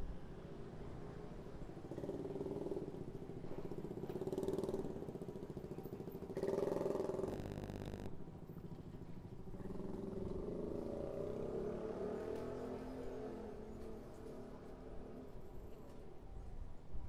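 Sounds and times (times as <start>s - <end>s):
vehicle engine droning: 7.2s - 8.1s
fast even ticking: 7.3s - 8.1s.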